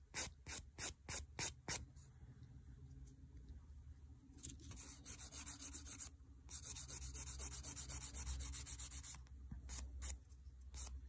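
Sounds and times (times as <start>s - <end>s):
nail file scraping fingernail: 4.7s - 10.2s.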